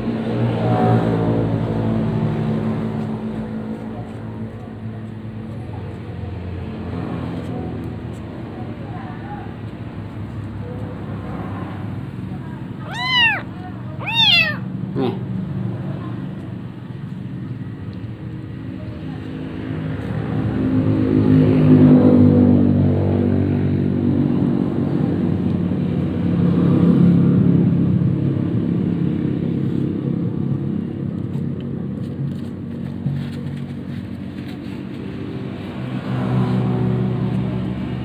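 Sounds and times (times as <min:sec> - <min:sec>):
passing vehicle engine hum: 0:00.0 - 0:38.0
kitten mewing: 0:12.8 - 0:15.3.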